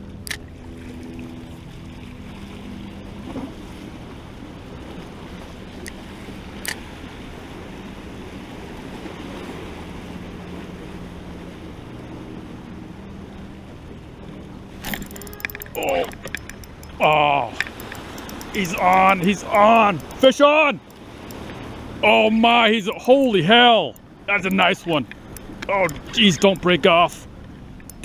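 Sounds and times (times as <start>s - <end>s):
sea water washing against rocks: 14.7s - 27.1s
sharp click: 14.8s - 20.2s.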